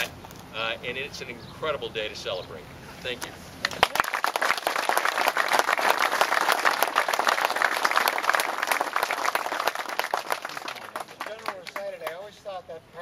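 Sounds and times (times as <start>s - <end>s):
audience applauding: 3.6s - 12.2s.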